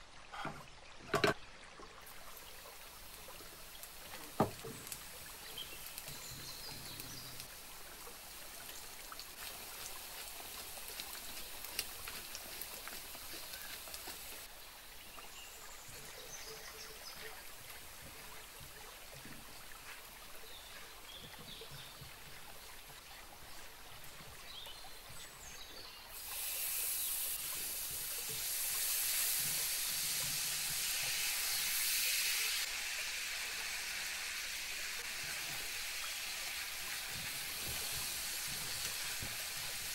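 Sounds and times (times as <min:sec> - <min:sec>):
garlic sizzling in oil: 0:02.0 - 0:14.5, 0:24.4 - 0:39.9.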